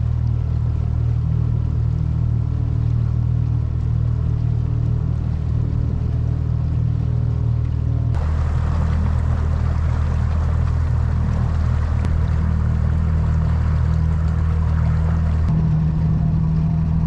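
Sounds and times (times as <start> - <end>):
boat motor humming: 0.0 - 17.0.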